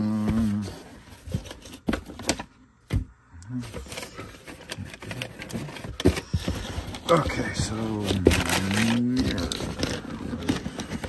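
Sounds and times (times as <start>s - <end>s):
cardboard boxes knocking and clicking: 4.4s - 11.0s.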